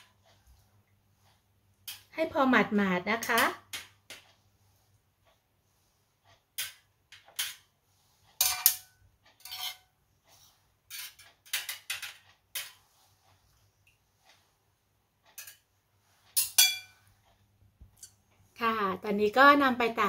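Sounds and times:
metal tongs clinking on ceramic bowl: 16.4s - 17.0s.

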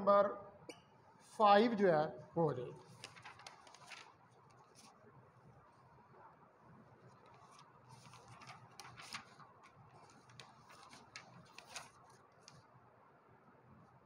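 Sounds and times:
paper rustling and clicks: 2.9s - 5.0s, 7.1s - 12.6s.

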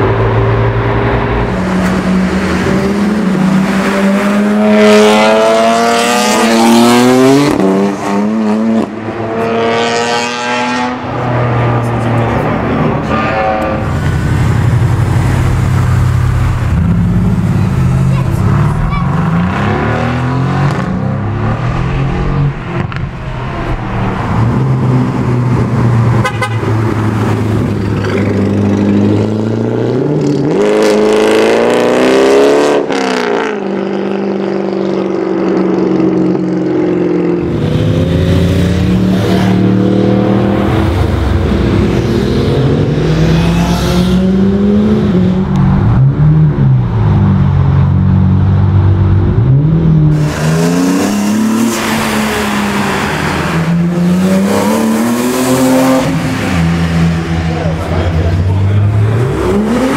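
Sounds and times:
car engines accelerating and revving: 0.0s - 59.9s.

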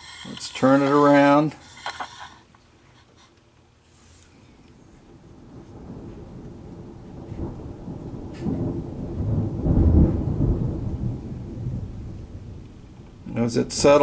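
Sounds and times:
thunder rumbling: 4.9s - 14.0s.

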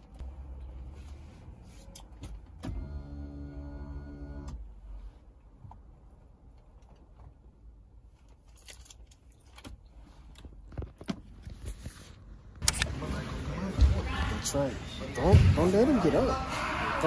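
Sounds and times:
power window motor whine: 2.6s - 4.6s.

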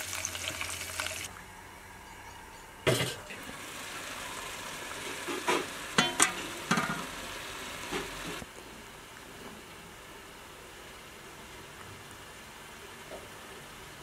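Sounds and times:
sauce bubbling and sizzling: 0.0s - 1.5s, 3.3s - 14.0s
metal utensil clinking on pot: 6.0s - 7.1s.

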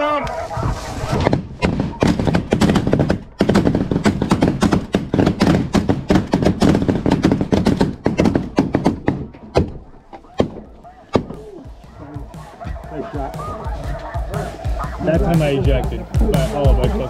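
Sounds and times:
fabric rubbing against microphone: 0.3s - 1.2s.

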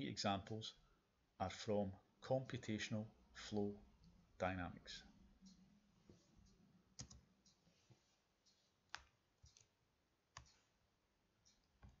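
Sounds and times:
computer mouse clicks: 6.4s - 7.6s, 8.5s - 10.7s.

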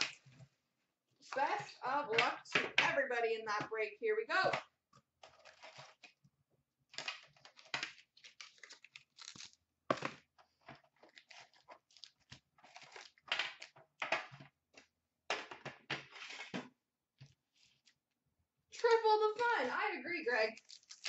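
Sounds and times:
wrapper tearing and crinkling: 7.0s - 9.6s, 11.0s - 13.3s, 20.5s - 21.0s.

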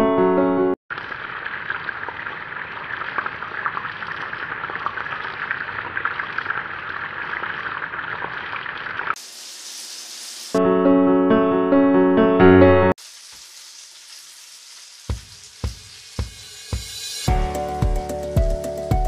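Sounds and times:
meatballs sizzling in hot oil: 0.9s - 10.6s, 13.0s - 17.6s.

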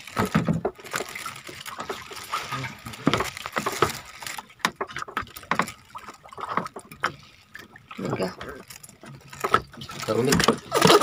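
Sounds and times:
water splashing and trickling: 0.0s - 11.0s
irregular knocks and clicks: 3.0s - 5.8s.

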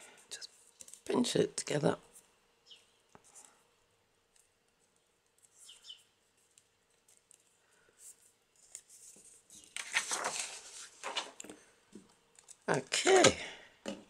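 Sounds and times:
paper rustling: 4.3s - 12.6s.

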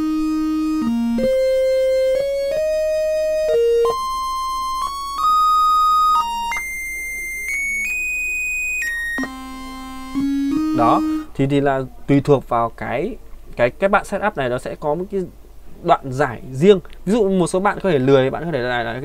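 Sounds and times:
synthesizer lead arpeggio: 0.0s - 8.1s, 8.8s - 11.4s.

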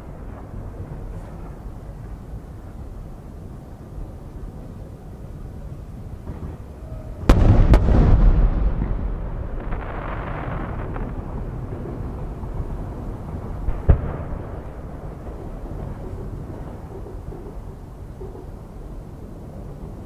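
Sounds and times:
rolling echo rumble: 0.0s - 20.0s
firework shells booming: 6.3s - 17.6s.

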